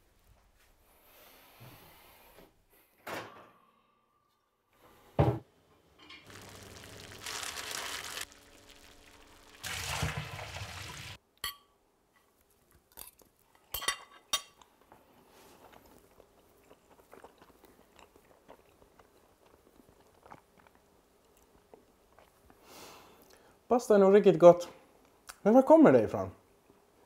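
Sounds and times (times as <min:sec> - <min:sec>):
pot of water boiling: 0:06.2 - 0:11.2.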